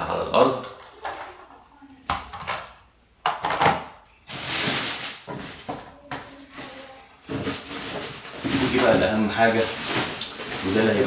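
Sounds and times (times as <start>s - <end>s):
packaging rustling: 4.2s - 11.0s
hard plastic knocks and clatters: 7.2s - 9.0s.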